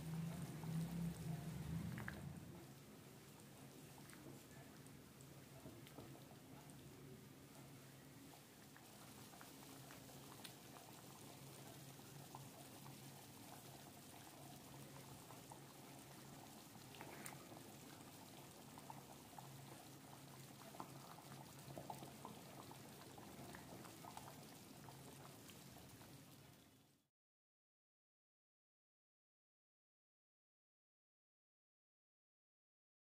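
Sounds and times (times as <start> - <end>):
low steady hum: 0.0 - 18.6
curry bubbling in a pan: 0.0 - 27.0.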